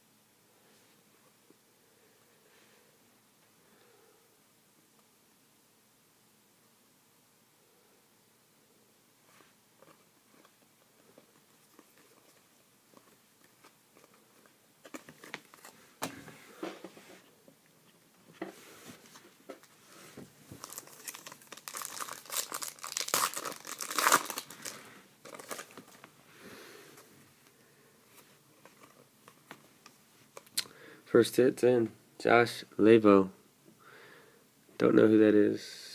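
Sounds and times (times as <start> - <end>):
wrapper crinkling: 20.5 - 26.1
foil pack torn open: 20.6 - 25.8.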